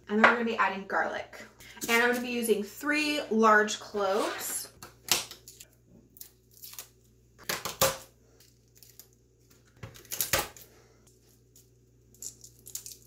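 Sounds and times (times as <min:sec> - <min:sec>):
garlic skins crackling: 0:05.3 - 0:07.8, 0:08.4 - 0:13.0.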